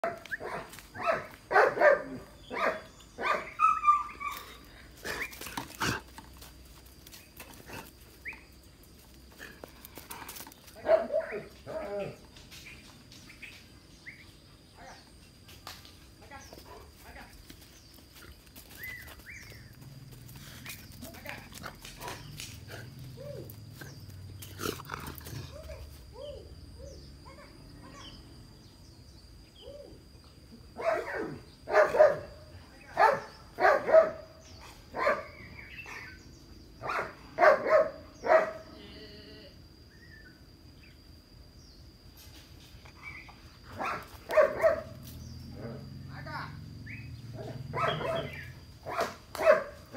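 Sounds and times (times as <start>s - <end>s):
dog barking: 0.0s - 4.1s, 30.8s - 32.4s, 33.0s - 34.3s, 35.0s - 35.4s, 36.8s - 38.6s, 43.8s - 45.0s, 47.4s - 49.8s.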